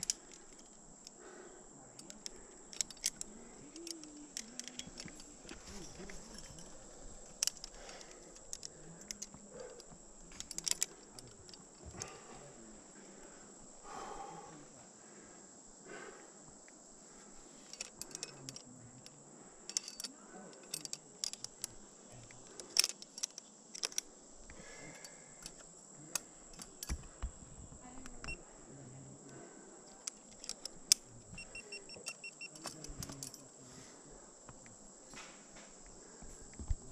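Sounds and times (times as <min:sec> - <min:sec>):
metal climbing gear clinking: 0:00.0 - 0:13.8, 0:17.2 - 0:27.2, 0:29.3 - 0:33.6
faint steady high tone: 0:31.2 - 0:33.9.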